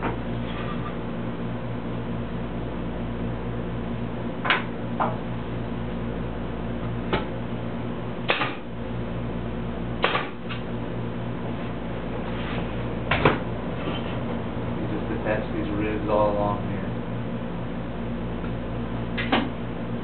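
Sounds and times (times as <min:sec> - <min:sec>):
steady low hum: 0:00.0 - 0:20.0
pneumatic nail gun firing: 0:10.0 - 0:10.4.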